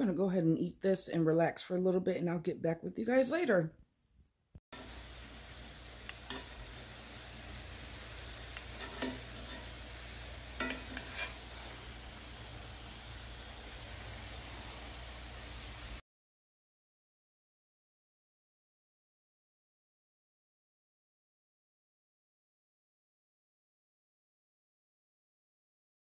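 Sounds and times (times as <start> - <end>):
steaks sizzling in skillet: 4.8 - 16.0.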